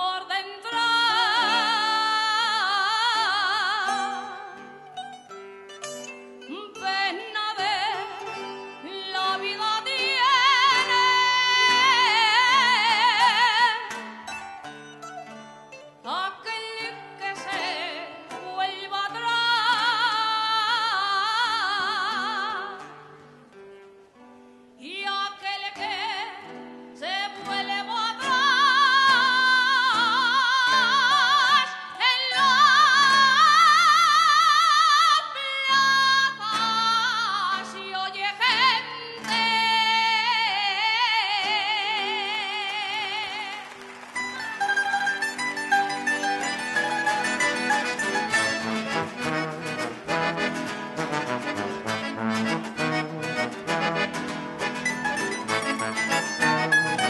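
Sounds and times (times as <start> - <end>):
soprano singing with vibrato: 0.0 - 4.7, 6.5 - 14.0, 16.1 - 22.8, 24.8 - 43.6
plucked string ensemble: 0.6 - 24.7, 41.4 - 57.0.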